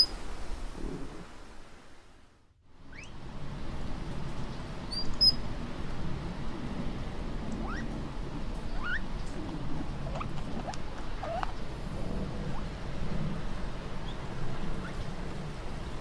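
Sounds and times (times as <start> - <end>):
rodent squeaking: 2.9 - 3.2, 7.6 - 7.9, 8.7 - 9.1, 10.0 - 11.6, 14.0 - 15.1.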